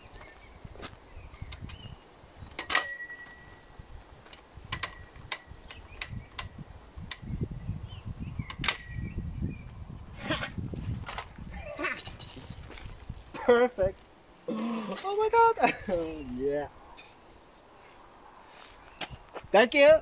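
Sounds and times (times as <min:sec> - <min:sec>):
metal clicks and clanks: 0:02.5 - 0:03.5, 0:04.3 - 0:06.5
metallic ring: 0:02.6 - 0:03.7.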